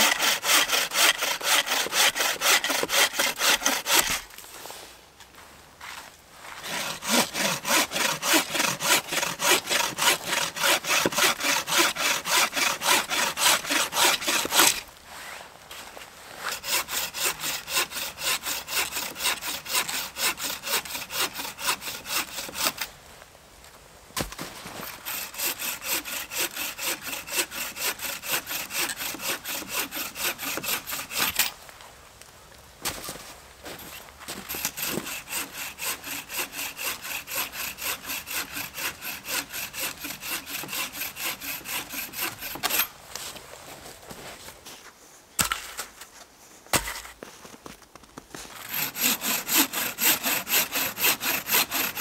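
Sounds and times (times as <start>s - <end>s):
bow saw cutting log: 0.0s - 4.3s, 6.6s - 14.8s, 16.4s - 22.9s, 24.8s - 31.5s, 34.5s - 42.9s, 48.6s - 52.0s.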